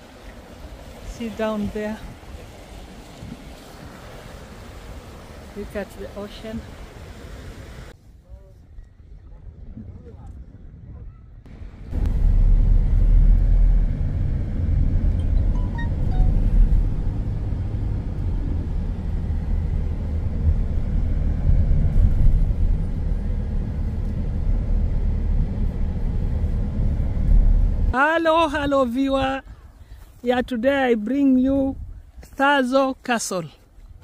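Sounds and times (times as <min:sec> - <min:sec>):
engine and tyres rumbling: 0:11.5 - 0:28.0.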